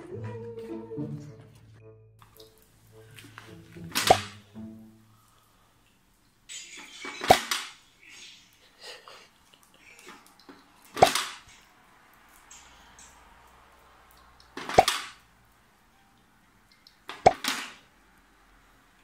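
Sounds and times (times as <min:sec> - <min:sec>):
ball knocking into plastic launcher: 0:03.9 - 0:04.4.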